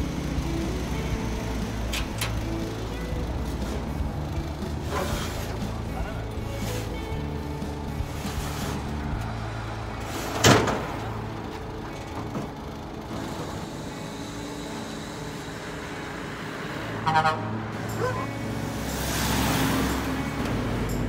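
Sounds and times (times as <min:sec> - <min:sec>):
truck engine idling: 0:00.0 - 0:21.0
metal ramp clanking down: 0:01.7 - 0:02.8, 0:10.0 - 0:13.8
horn toot: 0:17.0 - 0:18.4.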